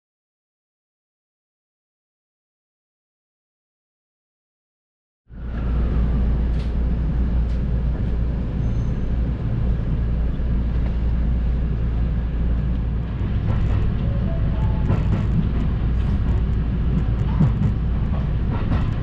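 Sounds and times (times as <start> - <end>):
train running rumble: 5.3 - 19.0.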